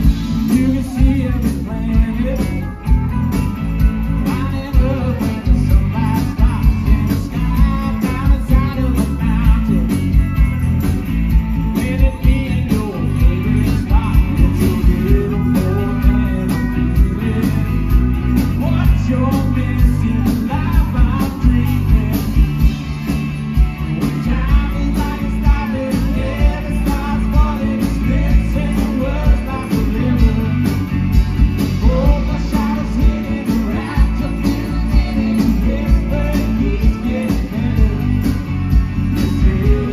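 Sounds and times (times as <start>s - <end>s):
electric guitar: 0.0s - 39.9s
keyboard: 0.0s - 39.9s
steady drum beat: 0.0s - 39.9s
person singing: 4.0s - 10.2s, 11.7s - 18.0s, 18.6s - 22.7s, 24.0s - 30.9s, 31.6s - 39.9s.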